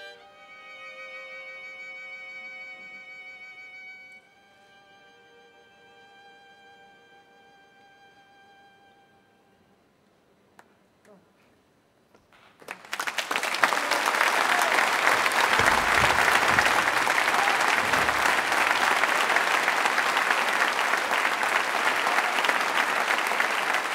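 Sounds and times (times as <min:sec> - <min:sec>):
audience applause: 0:12.6 - 0:23.9.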